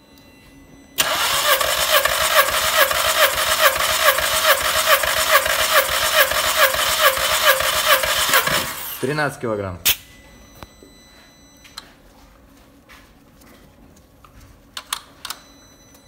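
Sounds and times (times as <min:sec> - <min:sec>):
starter motor cranking engine: 0:01.0 - 0:09.0.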